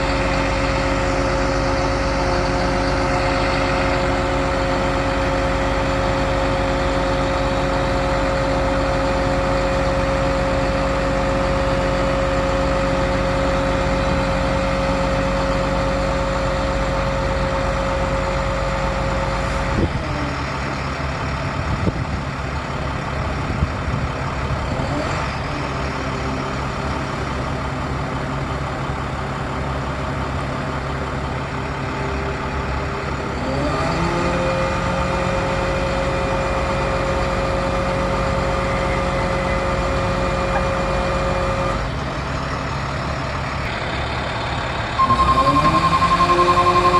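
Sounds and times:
hydraulic whine: 0.0 - 21.0, 43.7 - 46.9
diesel engine running: 0.0 - 46.9.

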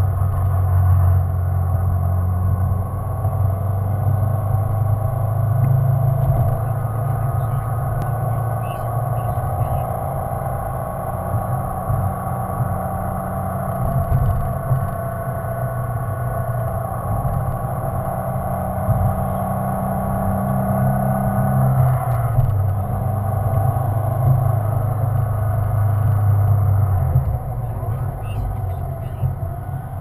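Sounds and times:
car engine cruising: 0.0 - 30.0
road noise: 0.0 - 30.0.

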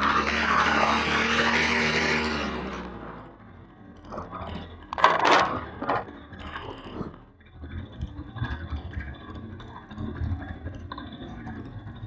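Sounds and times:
pit bike engine: 0.0 - 12.0
sharp clatter: 4.0 - 7.1.

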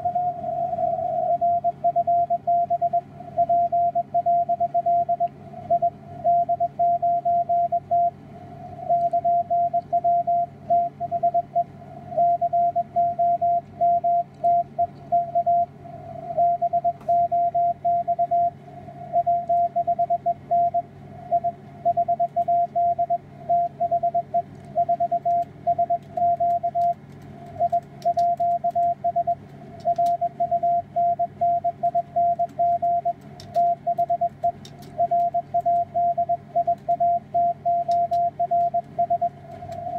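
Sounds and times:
low hum and band noise: 0.0 - 39.9
morse code tone: 1.2 - 8.1, 8.9 - 15.7, 16.4 - 18.6, 19.2 - 27.0, 27.6 - 39.4.

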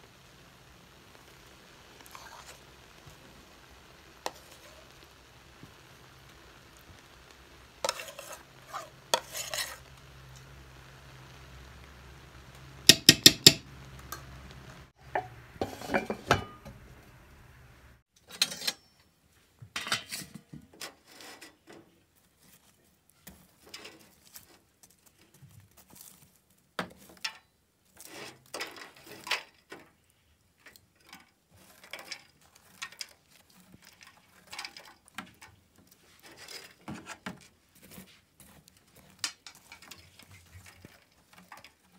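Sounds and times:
metal spoon scraping a pot: 2.0 - 2.6, 4.2 - 4.8, 7.8 - 9.8, 15.1 - 16.8, 18.2 - 19.0
tongs scraping in stove firebox: 2.0 - 3.0, 3.9 - 5.0, 7.8 - 10.0, 15.1 - 16.7, 19.8 - 21.9, 23.2 - 24.6, 27.0 - 41.9.

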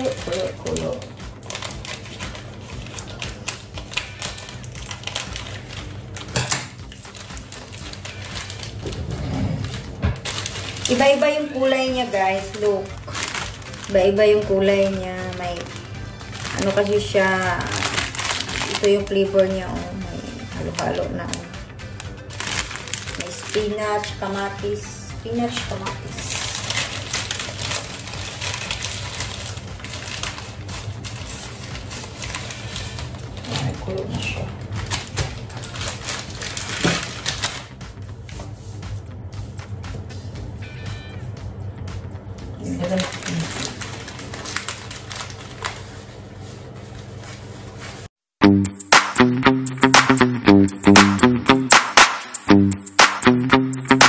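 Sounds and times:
package crinkling: 0.0 - 19.3, 20.7 - 24.6, 25.5 - 38.2, 42.9 - 46.5.

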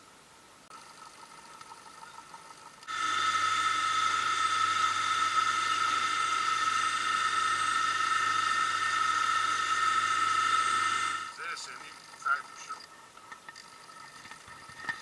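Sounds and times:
motorboat engine whining: 2.8 - 11.4.

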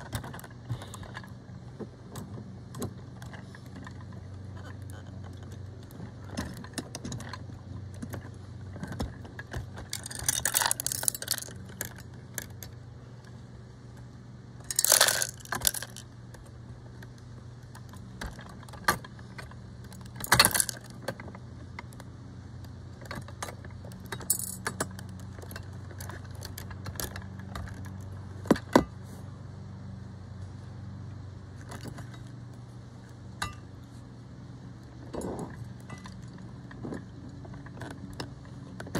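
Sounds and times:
steady low hum: 0.0 - 38.9
metallic rattles of toy truck: 2.0 - 12.8, 14.6 - 22.0, 22.9 - 28.9
toy dumpster clinking: 9.8 - 12.5, 14.7 - 16.0, 20.2 - 20.9.

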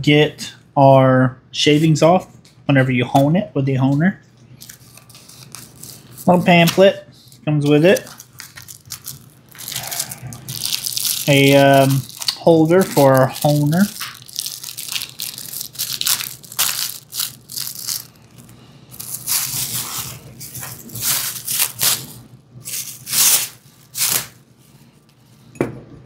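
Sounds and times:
plastic packaging crinkling: 4.5 - 24.5.

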